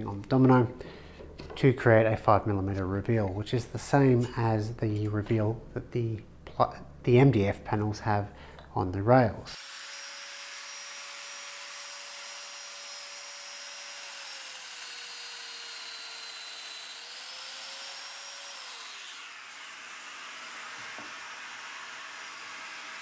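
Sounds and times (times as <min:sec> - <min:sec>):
power tool motor whining: 0:09.6 - 0:23.0.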